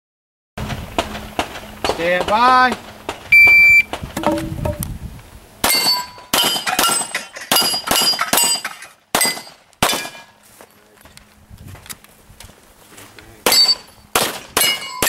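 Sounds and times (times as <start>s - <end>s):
shot timer beep: 3.4s - 4.8s
pistol shots: 13.5s - 15.0s.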